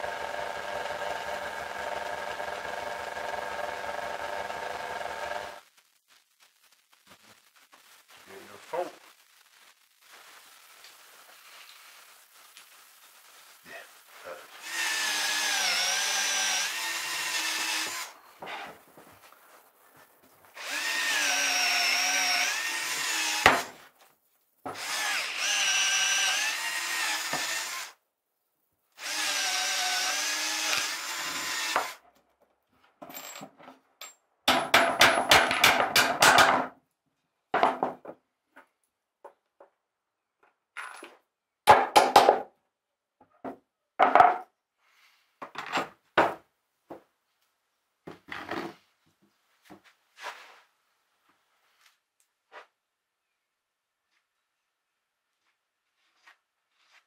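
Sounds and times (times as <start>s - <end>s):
cordless drill boring wood: 0.0s - 5.6s, 14.5s - 18.2s, 20.6s - 23.7s, 24.7s - 28.0s, 29.0s - 32.0s.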